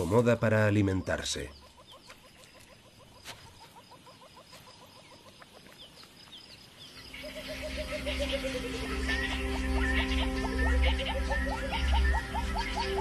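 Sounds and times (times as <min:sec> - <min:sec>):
bush ambience: 0:00.0 - 0:13.0
bird chirping rapidly: 0:00.6 - 0:13.0
soundtrack music with low drone: 0:07.1 - 0:13.0.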